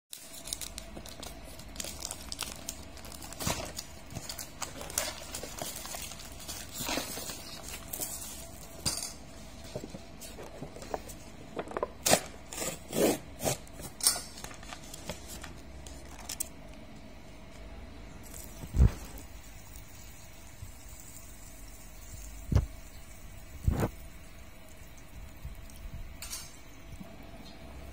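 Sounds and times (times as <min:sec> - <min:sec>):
plastic wrap crinkling: 0:00.1 - 0:16.8.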